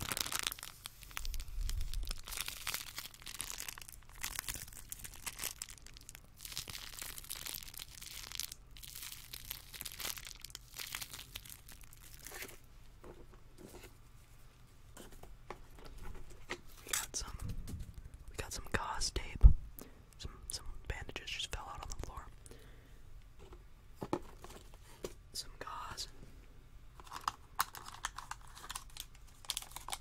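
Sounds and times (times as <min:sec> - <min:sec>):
plastic bag crinkling: 0:00.0 - 0:12.6, 0:27.0 - 0:30.0.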